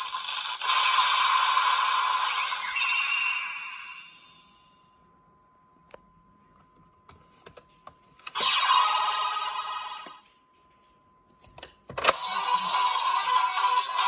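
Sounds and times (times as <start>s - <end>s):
toy belt electronic sound effects: 0.0s - 4.6s, 8.3s - 10.2s, 12.0s - 14.0s.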